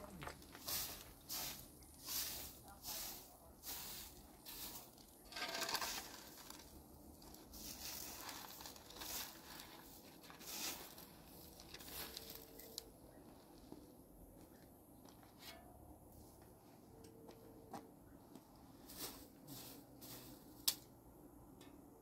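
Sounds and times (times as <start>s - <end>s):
broom sweeping concrete floor: 0.2s - 12.9s, 18.7s - 20.8s.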